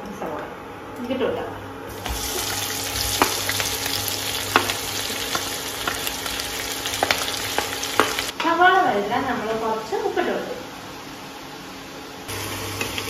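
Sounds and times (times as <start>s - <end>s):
onions sizzling in oil: 1.9s - 8.3s, 12.3s - 13.0s.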